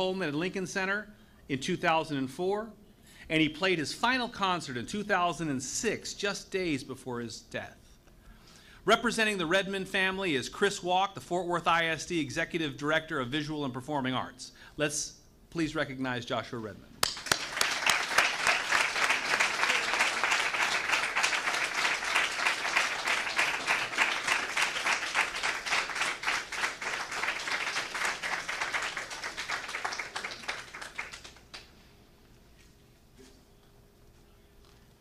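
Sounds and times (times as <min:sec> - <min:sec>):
audience applauding: 0:17.0 - 0:31.7.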